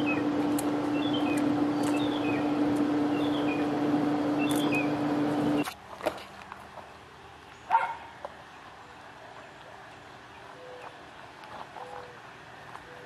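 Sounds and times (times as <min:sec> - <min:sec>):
birds chirping: 0:00.0 - 0:05.7
steady low hum: 0:00.0 - 0:05.8.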